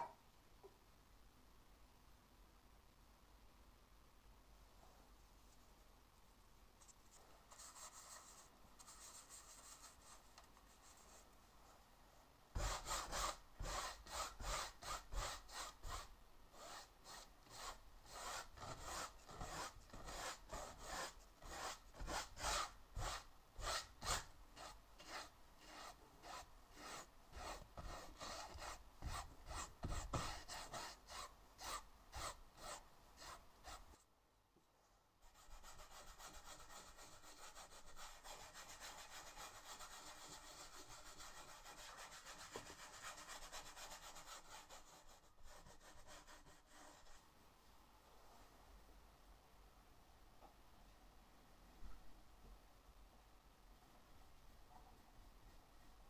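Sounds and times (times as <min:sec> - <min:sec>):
paintbrush rubbing on canvas: 0:12.6 - 0:34.0.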